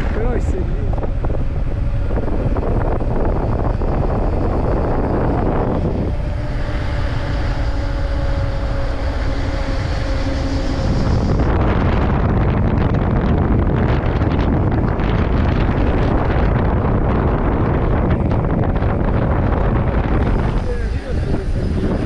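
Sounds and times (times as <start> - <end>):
two-pitch hum: 0.0 - 22.0
wind on microphone: 0.0 - 22.0.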